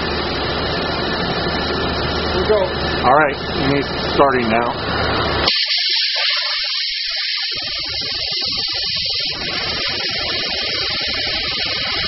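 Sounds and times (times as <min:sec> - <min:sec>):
waterjet loud hiss: 0:05.4 - 0:12.0.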